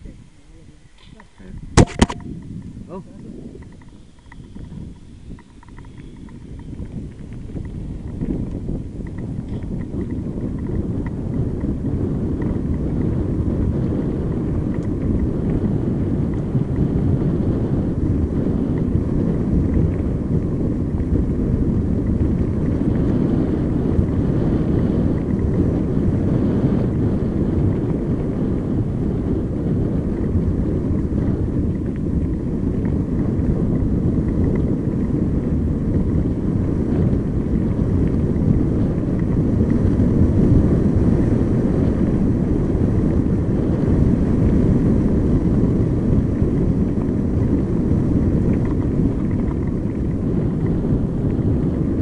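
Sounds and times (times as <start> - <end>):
bicycle tyres rolling on gravel: 0.0 - 52.0
wind buffeting microphone: 0.0 - 52.0.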